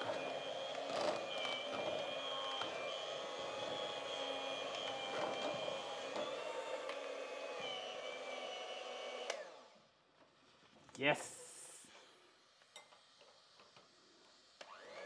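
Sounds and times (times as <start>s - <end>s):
electric hand mixer whining: 0.0s - 9.8s, 13.7s - 15.0s.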